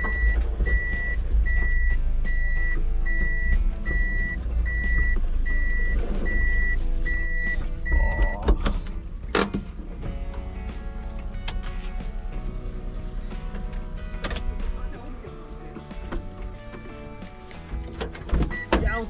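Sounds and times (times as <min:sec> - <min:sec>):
reversing beeper: 0:00.0 - 0:08.4
truck engine running: 0:00.0 - 0:19.0.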